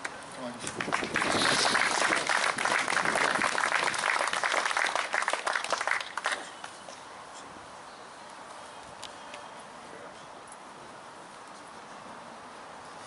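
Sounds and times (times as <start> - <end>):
audience applauding: 0.8 - 6.5.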